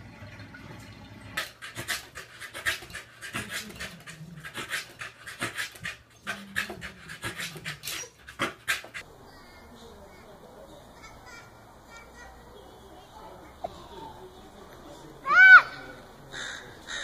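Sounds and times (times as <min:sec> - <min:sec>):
dog panting hard: 0:01.4 - 0:09.0.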